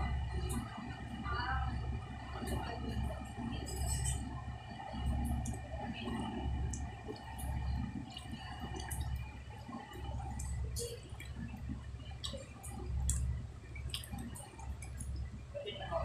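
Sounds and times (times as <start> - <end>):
faint steady hum: 0.0 - 16.0
wet hands squishing putty: 13.0 - 15.2.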